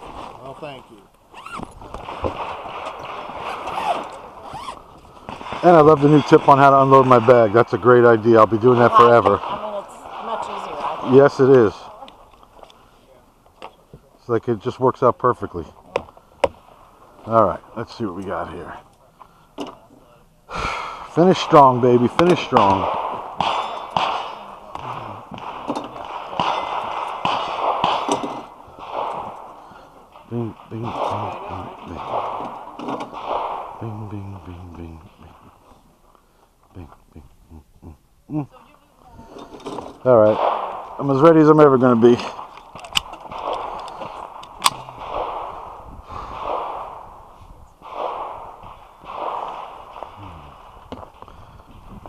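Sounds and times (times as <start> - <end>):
sharp crack: 1.4 - 12.7, 20.8 - 35.6, 39.6 - 52.0
slow deep breaths: 19.0 - 19.6, 20.5 - 21.2, 29.4 - 30.2, 35.6 - 36.7, 43.7 - 46.7, 50.0 - 52.0
person breathing rapidly: 20.5 - 21.1, 46.0 - 46.6, 50.2 - 51.9
rifle handling clicks: 42.5 - 44.8.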